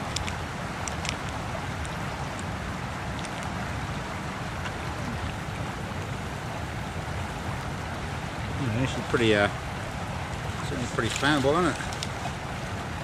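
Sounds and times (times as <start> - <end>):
faint sharp clicks: 0.0 - 2.5, 11.0 - 12.2
rushing outdoor noise: 0.0 - 13.0.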